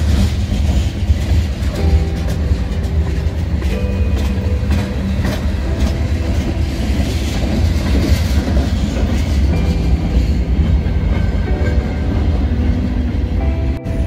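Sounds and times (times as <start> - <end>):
wheels clicking over rail joints: 0.0 - 13.8
train wheels rumbling on rails: 0.0 - 14.0.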